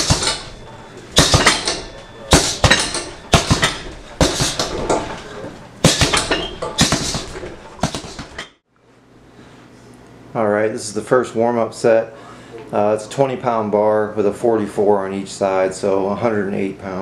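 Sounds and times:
punches hitting a heavy bag: 0.0 - 5.2, 5.8 - 8.4.

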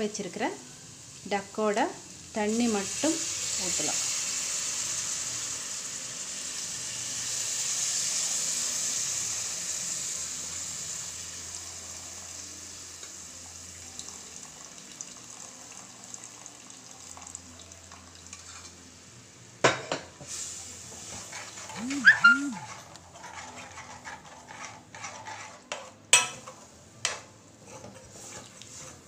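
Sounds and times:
liquid sizzling in a hot pan: 0.0 - 29.0.

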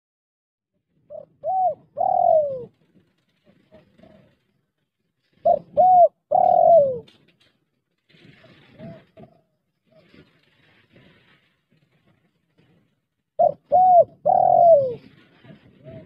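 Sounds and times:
dove cooing: 1.1 - 2.7, 5.4 - 7.1, 13.4 - 16.0.

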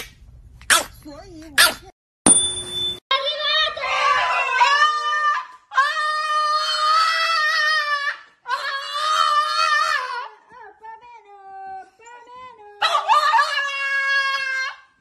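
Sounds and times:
dog howling: 4.0 - 10.5, 12.8 - 14.9.

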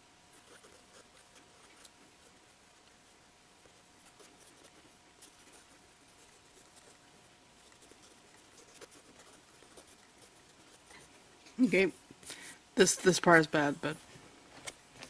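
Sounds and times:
pencil scratching on paper: 0.4 - 1.9, 4.0 - 11.2.

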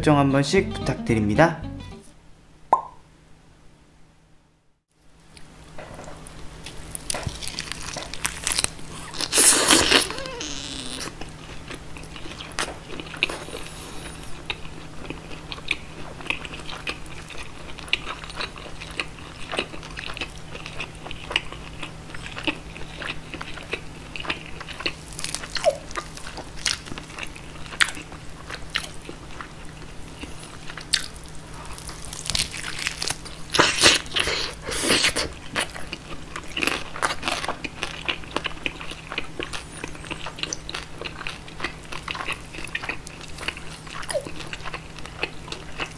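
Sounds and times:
moist chewing: 6.6 - 45.9
crisp skin crunching: 6.7 - 11.2, 24.3 - 29.0, 30.2 - 45.9.

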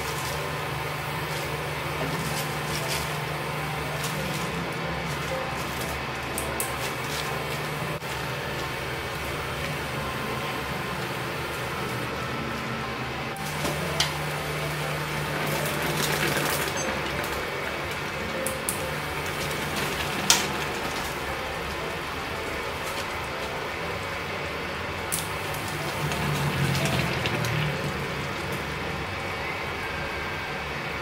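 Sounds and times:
soup bubbling in a pot: 25.2 - 29.2.

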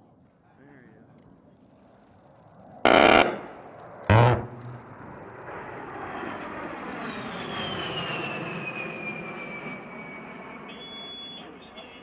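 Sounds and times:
jet engines passing overhead: 1.2 - 12.0.

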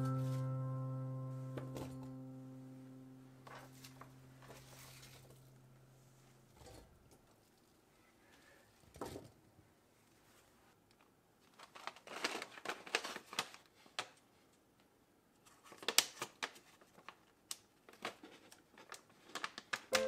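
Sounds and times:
plastic bag crinkling: 11.4 - 13.7.

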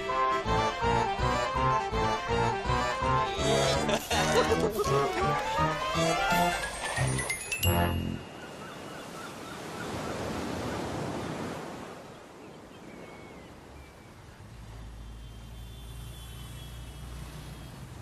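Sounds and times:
sea waves breaking on shore: 4.7 - 18.0.

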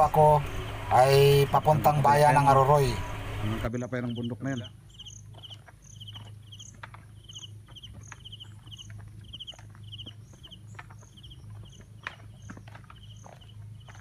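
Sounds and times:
insects chirping: 0.0 - 14.0
steady low hum: 0.0 - 14.0
footsteps in grass: 4.9 - 14.0.

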